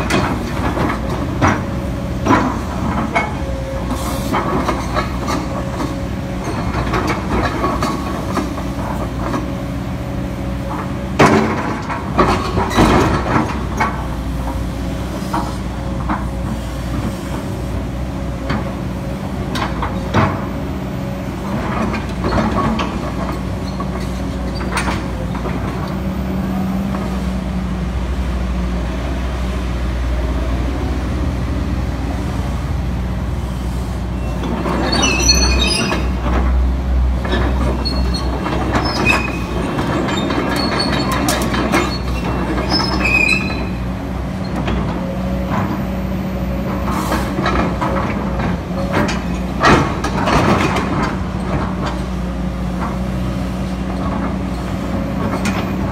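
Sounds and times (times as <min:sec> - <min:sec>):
excavator diesel engine running: 0:00.0 - 0:55.9
short high squeals: 0:34.2 - 0:36.2.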